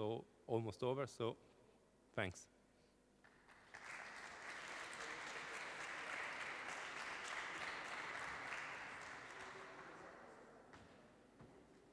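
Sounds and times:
audience applauding: 3.5s - 10.4s.

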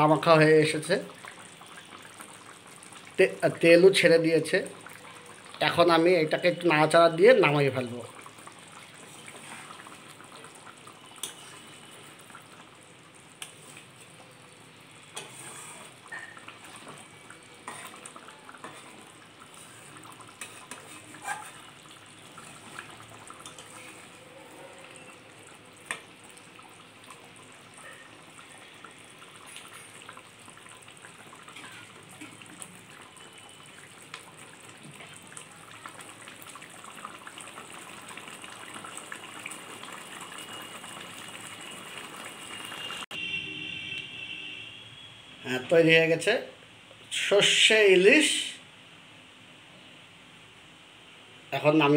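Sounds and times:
gravy simmering and sizzling: 0.0s - 45.1s
metal spatula scraping pan: 15.1s - 16.4s, 17.6s - 18.0s, 18.6s - 21.7s, 31.6s - 32.0s.

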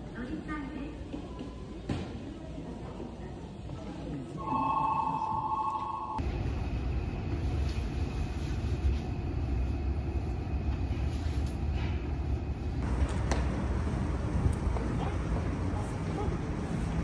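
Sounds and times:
train low rumble: 5.2s - 17.0s.

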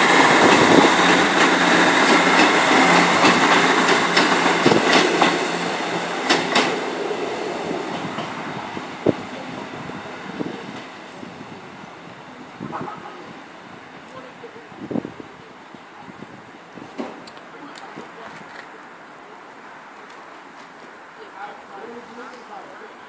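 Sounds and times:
wheels clicking over rail joints: 0.0s - 6.8s
train wheel noise: 0.0s - 18.8s
diesel train passing: 0.0s - 23.0s.

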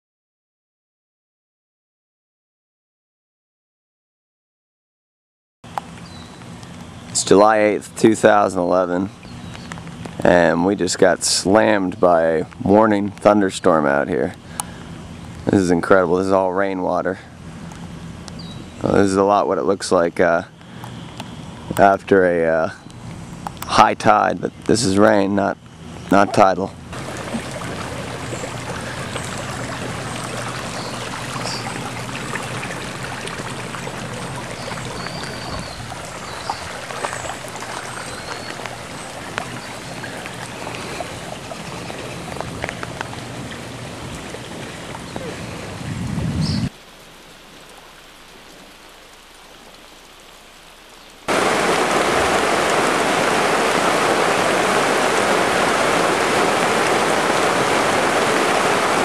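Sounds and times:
rain pelting onto plastic tarp: 27.0s - 45.3s, 46.7s - 59.0s
heavy rain on flooded ground: 27.0s - 59.0s.

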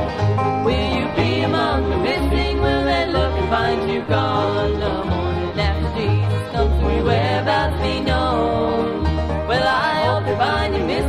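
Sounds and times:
banjo: 0.0s - 11.0s
bluegrass band music: 0.0s - 11.0s
upright bass: 0.0s - 11.0s.

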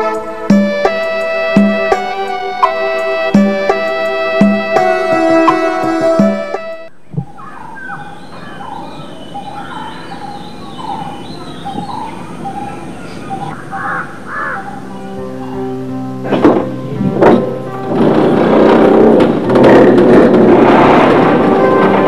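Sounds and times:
background music: 0.0s - 6.9s, 14.6s - 22.0s
many birds chirping: 6.9s - 22.0s.

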